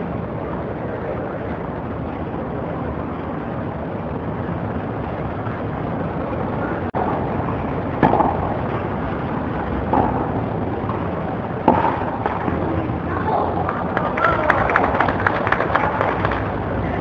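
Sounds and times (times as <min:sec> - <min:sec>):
steady background hum: 0:00.0 - 0:17.0
racket hitting tennis ball: 0:07.0 - 0:09.0, 0:09.7 - 0:12.6.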